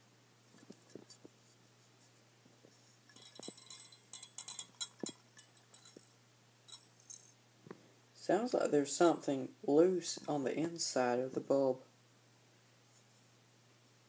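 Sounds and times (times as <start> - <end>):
loose glass rattling in a bulb: 3.1 - 7.4.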